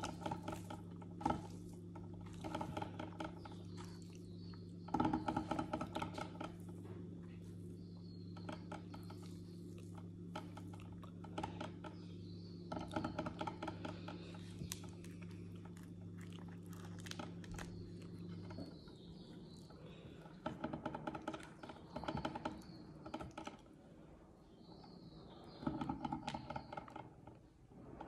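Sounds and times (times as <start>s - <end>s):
chewing: 0.0s - 4.8s, 9.0s - 11.8s, 12.9s - 20.5s.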